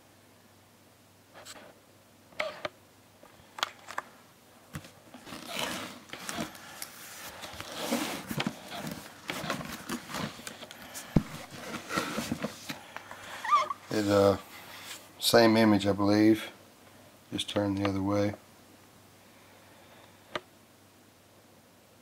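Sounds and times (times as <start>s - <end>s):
cardboard scraping and rubbing: 5.2s - 12.8s.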